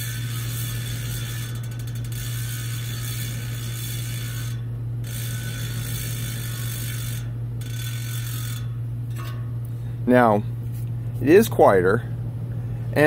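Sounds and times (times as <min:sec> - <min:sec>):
bicycle freehub clicking: 0:00.0 - 0:09.8
steady low hum: 0:00.0 - 0:13.0.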